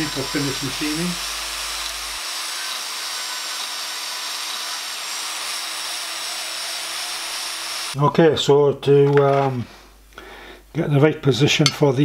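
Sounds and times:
bandsaw cutting steel: 0.0s - 8.0s.

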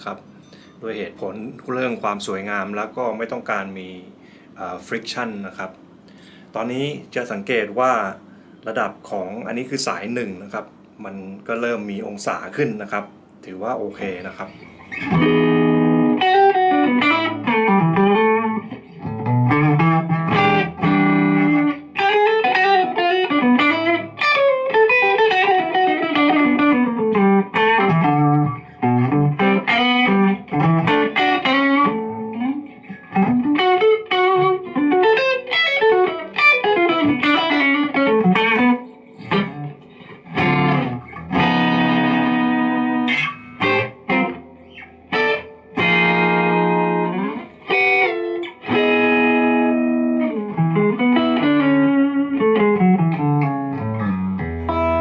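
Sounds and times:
electric guitar playing: 14.5s - 55.0s.

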